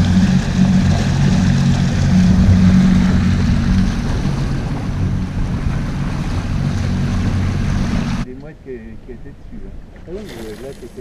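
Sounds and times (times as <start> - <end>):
outboard motor running: 0.0 - 8.2
wind noise: 0.0 - 8.3
water noise: 0.0 - 11.0.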